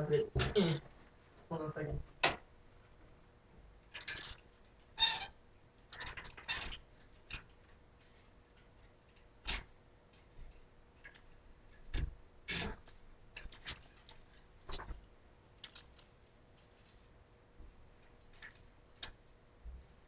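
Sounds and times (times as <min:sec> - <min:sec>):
clothes hangers clicking and rustling: 0:03.9 - 0:04.5, 0:05.9 - 0:15.0.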